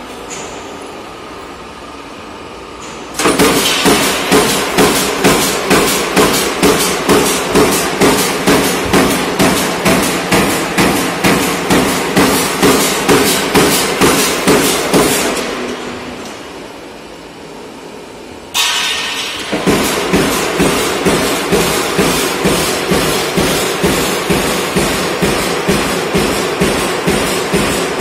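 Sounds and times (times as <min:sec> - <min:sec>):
low machine hum: 0:00.0 - 0:28.0
punching press metallic strokes: 0:03.2 - 0:15.6, 0:18.6 - 0:28.0.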